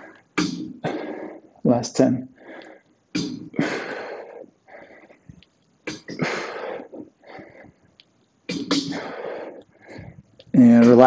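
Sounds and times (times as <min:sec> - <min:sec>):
man breathing hard: 0:03.6 - 0:05.2, 0:06.4 - 0:07.8, 0:08.9 - 0:10.3.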